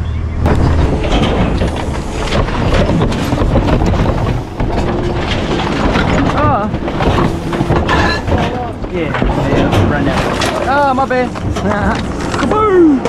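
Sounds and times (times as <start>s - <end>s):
garbage truck rumble: 0.1s - 13.0s
rattling and clattering knocks: 0.4s - 12.6s.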